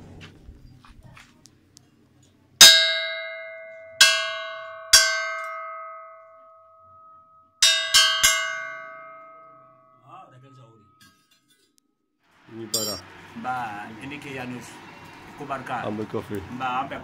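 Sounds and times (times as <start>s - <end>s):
metal bell clanging: 7.0s - 10.0s, 12.8s - 13.0s.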